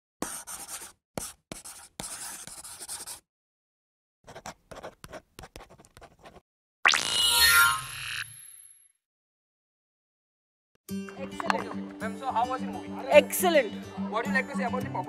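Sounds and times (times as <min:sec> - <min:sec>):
pen scratching strokes: 0:00.2 - 0:03.2, 0:04.3 - 0:06.4.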